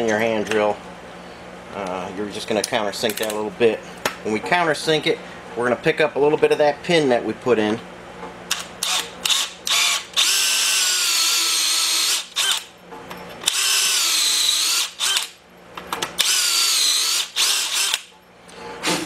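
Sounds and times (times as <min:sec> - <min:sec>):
electric drill cutting metal: 0:08.5 - 0:12.7, 0:13.4 - 0:15.4, 0:16.2 - 0:18.1.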